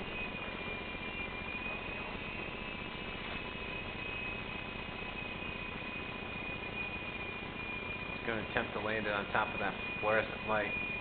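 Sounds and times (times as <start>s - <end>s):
rc helicopter motor whine: 0.0s - 11.0s.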